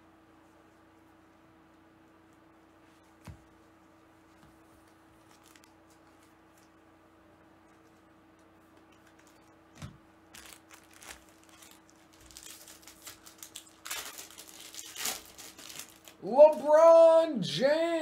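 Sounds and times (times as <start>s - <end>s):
foil wrapper crinkling: 5.2s - 6.7s, 8.9s - 16.6s.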